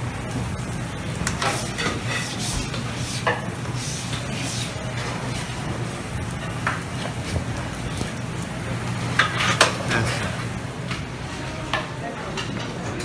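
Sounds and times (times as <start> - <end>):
food sizzling on griddle: 0.0 - 12.0
metal utensils clacking on griddle: 1.2 - 5.6, 6.2 - 10.3.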